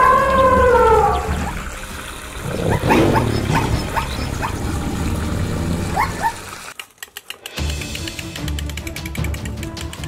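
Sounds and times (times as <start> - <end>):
animal yipping: 5.9 - 6.5.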